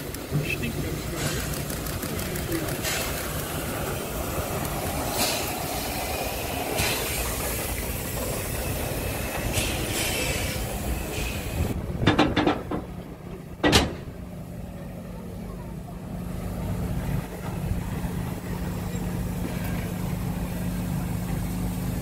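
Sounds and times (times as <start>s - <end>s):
steam locomotive exhaust chuffs: 0.0s - 14.8s
mechanical running noise: 1.2s - 11.6s.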